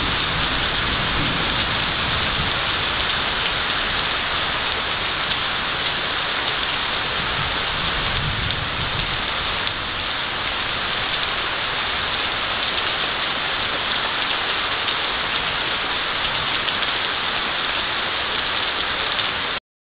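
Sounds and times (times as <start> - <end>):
low thunder rumble: 0.0 - 6.2, 6.8 - 12.5
heavy rain pouring: 0.0 - 19.6.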